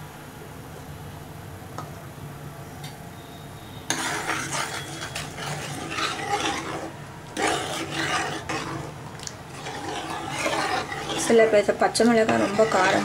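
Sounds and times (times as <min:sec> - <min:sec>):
spoon stirring and scraping a pot: 0:03.9 - 0:13.0.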